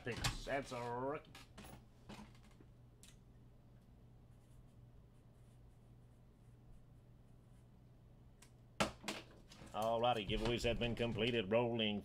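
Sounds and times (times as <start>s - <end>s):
steady low hum: 0.0s - 8.8s.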